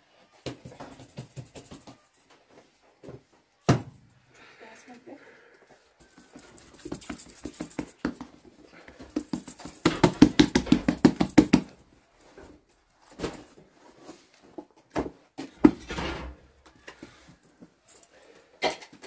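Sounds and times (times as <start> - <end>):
hands slapping dough: 6.8 - 11.8.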